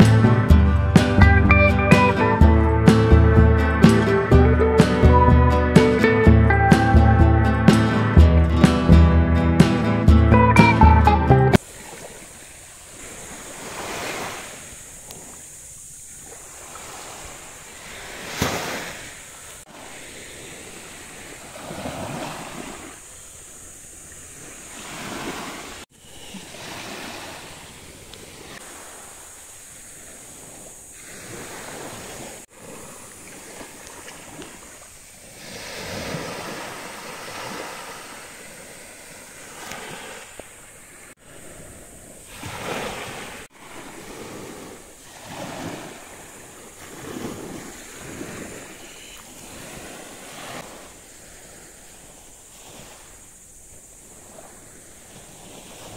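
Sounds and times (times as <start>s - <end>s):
waves washing on beach: 11.6s - 55.9s.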